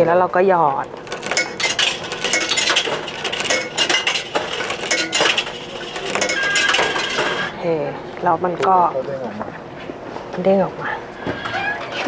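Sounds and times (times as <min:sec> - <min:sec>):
coins clinking into locker slot: 0:01.1 - 0:07.5.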